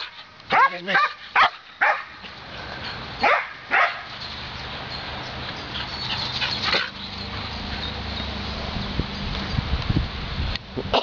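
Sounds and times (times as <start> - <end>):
dog barking: 0.0 - 2.2, 3.2 - 4.1.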